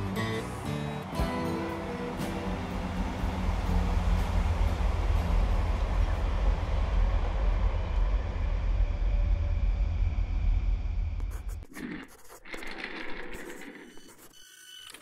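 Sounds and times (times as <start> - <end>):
road noise hiss: 0.0 - 8.8
bus engine rumbling: 0.0 - 11.2.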